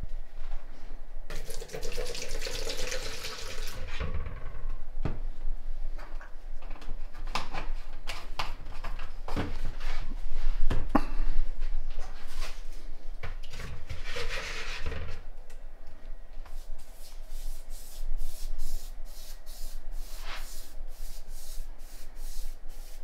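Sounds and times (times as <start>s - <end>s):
liquid pouring into plastic cup: 1.3s - 3.8s.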